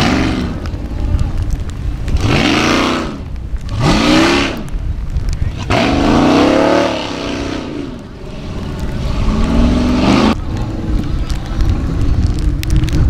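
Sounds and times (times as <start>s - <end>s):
buggy engine revving hard: 0.0s - 0.6s, 2.2s - 4.7s, 5.6s - 10.4s
low rumble: 0.0s - 13.0s.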